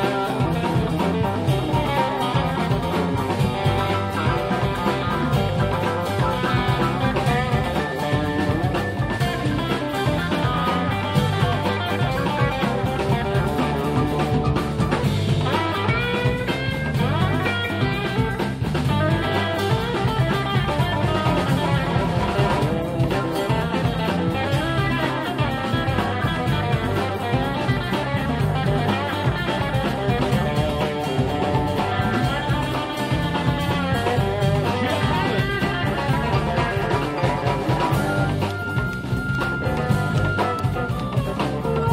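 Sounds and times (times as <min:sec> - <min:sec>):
electric blues band playing: 0:00.0 - 0:41.9
lead guitar bent notes: 0:00.0 - 0:41.9.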